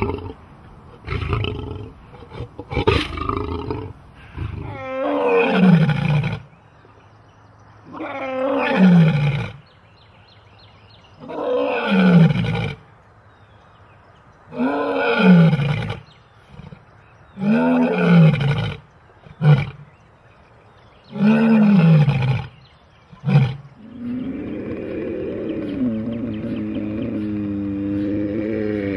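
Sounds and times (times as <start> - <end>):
lion roaring: 23.2 - 28.9
lion grunts: 23.3 - 28.9.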